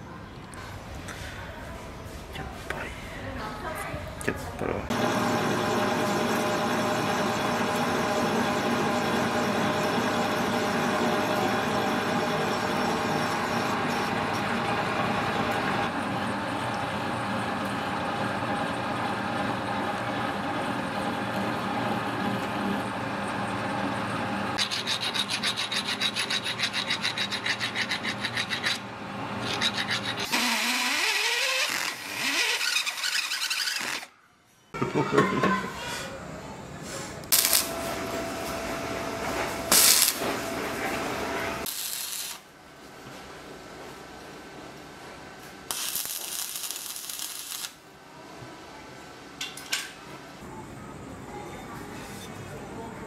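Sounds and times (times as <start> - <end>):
drill press cutting steel: 4.9 - 15.9, 24.6 - 34.1, 37.3 - 42.4
metal lathe running: 4.9 - 34.0, 37.4 - 41.7
file rasping on steel: 24.6 - 34.1
welding arc crackling: 30.2 - 34.1, 37.3 - 42.5, 45.6 - 47.9.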